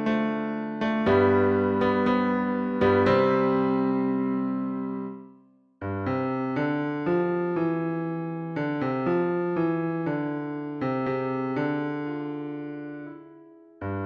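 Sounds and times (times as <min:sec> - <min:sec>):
midi piano playing choral parts: 0:00.0 - 0:05.2.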